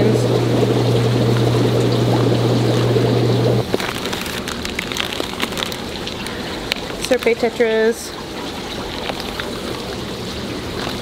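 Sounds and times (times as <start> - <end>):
aquarium low hum: 0.0 - 11.0
aquarium water bubbling: 0.0 - 11.0
plastic bag crinkling: 3.6 - 11.0.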